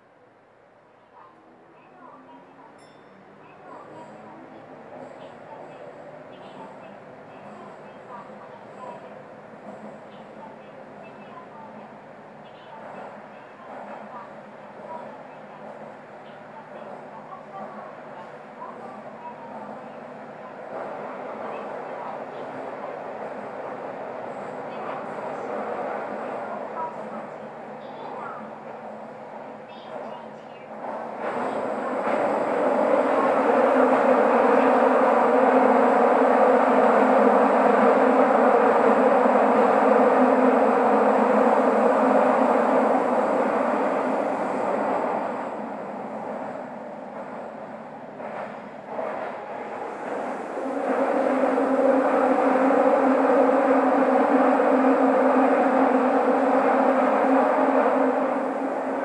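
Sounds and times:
subway train running in tunnel: 0.0 - 59.0.

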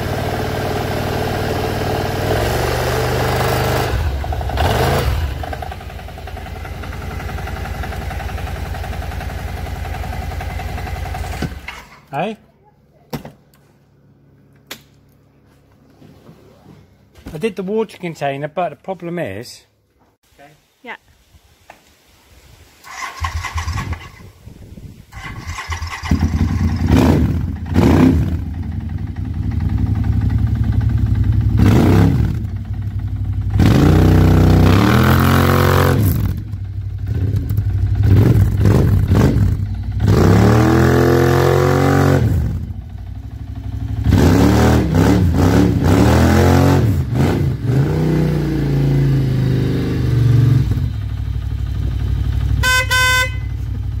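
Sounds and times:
scooter engine revving: 0.0 - 11.9, 25.1 - 54.0.

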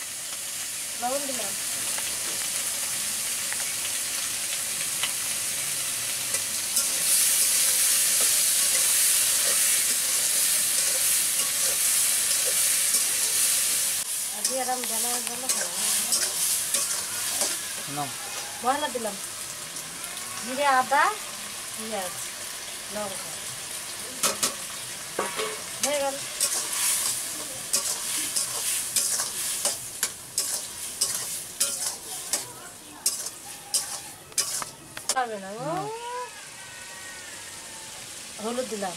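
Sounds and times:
vegetables sizzling in oil: 0.0 - 38.9
spatula scraping a pan: 6.3 - 13.8, 14.4 - 18.6, 25.2 - 34.7.

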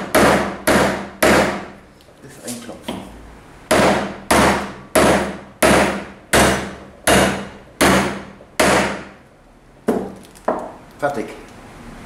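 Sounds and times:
hammer striking metal: 0.0 - 1.7, 3.7 - 9.2.

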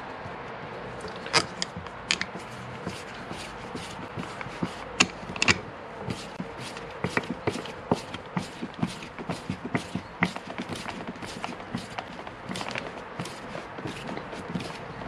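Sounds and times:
screwdriver metallic clicks: 1.1 - 2.3, 5.0 - 5.6.

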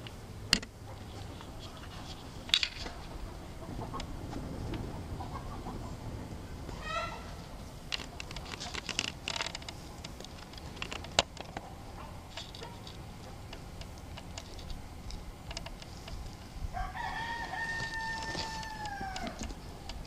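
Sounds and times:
rooster crowing: 6.8 - 7.4, 16.7 - 19.6
chickens tapping and clicking: 7.9 - 16.5, 17.4 - 20.0.

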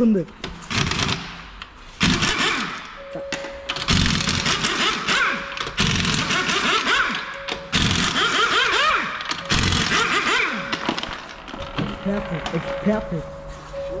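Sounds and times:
impact wrench hammering: 0.5 - 12.0
faint music: 10.0 - 14.0.

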